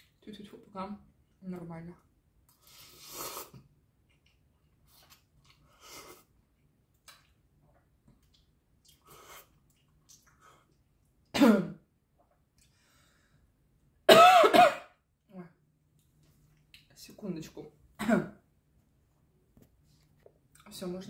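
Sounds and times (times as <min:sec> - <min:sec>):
mouth sounds of eating: 0:02.5 - 0:10.9
woman coughing: 0:11.4 - 0:11.8, 0:14.1 - 0:15.0, 0:18.0 - 0:18.4.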